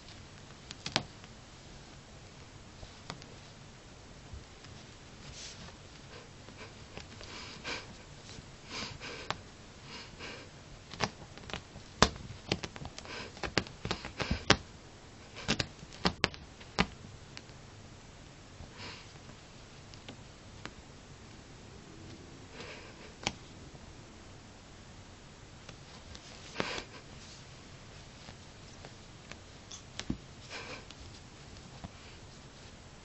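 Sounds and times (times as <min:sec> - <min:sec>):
cat rubbing on carpet: 0:04.4 - 0:08.5, 0:25.6 - 0:32.8.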